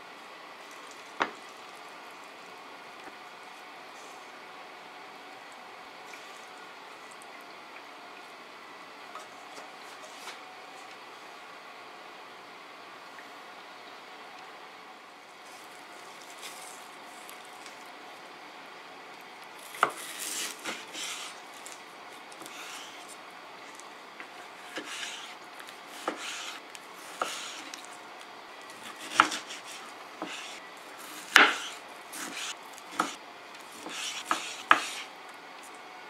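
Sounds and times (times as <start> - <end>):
knife slicing meat: 19.6 - 23.2, 24.5 - 27.9, 28.7 - 35.1.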